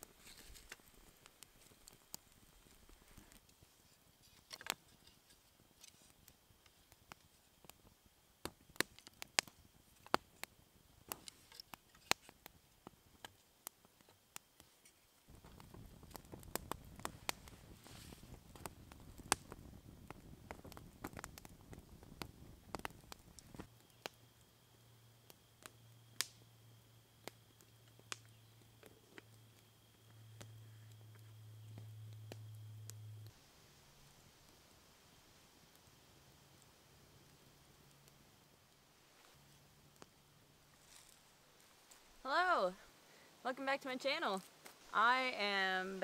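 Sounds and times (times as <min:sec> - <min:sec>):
wood fire crackling and popping: 0:00.0 - 0:46.0.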